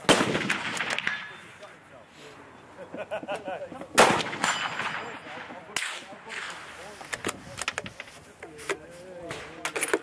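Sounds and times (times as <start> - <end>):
rifle shot: 0.0 - 1.4, 4.0 - 6.7.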